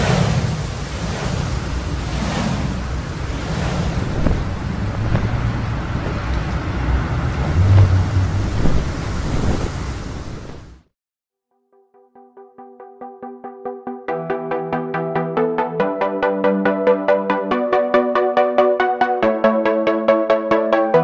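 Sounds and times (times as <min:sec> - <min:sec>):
rushing wind with low rumble: 0:00.0 - 0:10.8.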